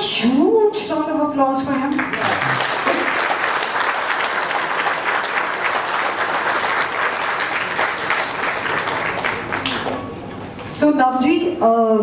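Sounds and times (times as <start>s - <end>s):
audience applauding: 1.9s - 10.2s.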